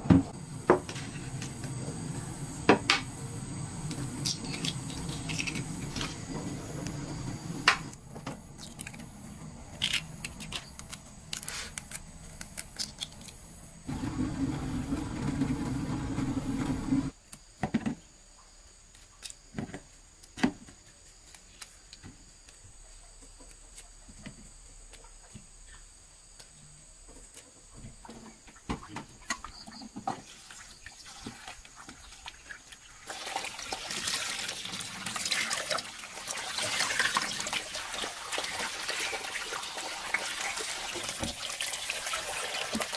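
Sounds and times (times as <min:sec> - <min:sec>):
electric kettle rumbling: 0:00.4 - 0:08.0, 0:13.9 - 0:17.1.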